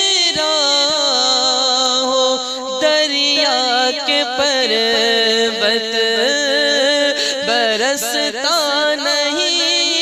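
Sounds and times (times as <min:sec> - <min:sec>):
man singing into a microphone: 0:00.0 - 0:10.0.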